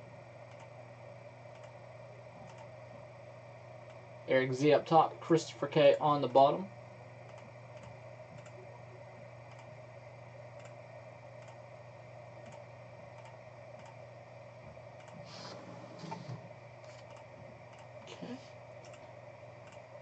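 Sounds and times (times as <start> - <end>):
low electrical hum: 0.0 - 20.0
computer mouse clicks: 0.5 - 0.7, 1.5 - 1.8, 2.4 - 2.7, 7.3 - 8.6, 9.5 - 9.7, 10.6 - 10.8, 11.4 - 11.6, 12.4 - 12.6, 13.2 - 14.0, 16.9 - 17.9, 18.8 - 19.9.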